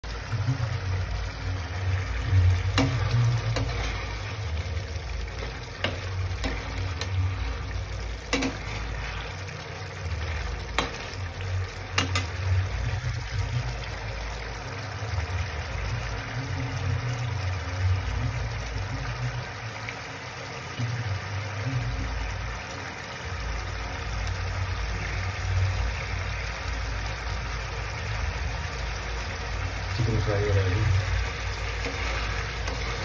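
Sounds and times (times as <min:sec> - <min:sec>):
low steady rumble: 0:00.0 - 0:19.6
curry sizzling in a frying pan: 0:00.0 - 0:33.0
spatula clinking and scraping pan: 0:02.6 - 0:04.6, 0:05.3 - 0:09.1, 0:10.7 - 0:11.2, 0:11.9 - 0:12.4, 0:31.7 - 0:33.0.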